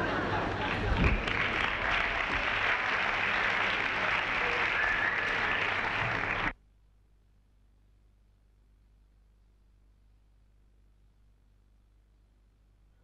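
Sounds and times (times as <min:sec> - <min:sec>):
audience applauding: 0:00.0 - 0:06.6
faint hum: 0:00.0 - 0:13.0.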